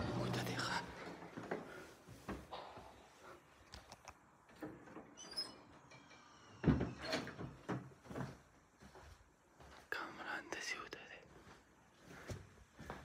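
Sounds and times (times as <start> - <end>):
faint high squeak: 5.2 - 7.3.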